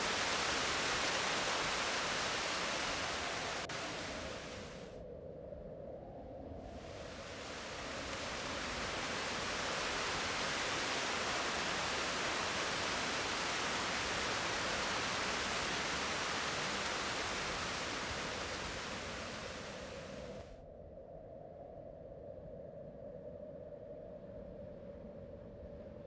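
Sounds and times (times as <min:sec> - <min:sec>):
waterfall rushing: 0:00.0 - 0:04.8, 0:06.9 - 0:20.4.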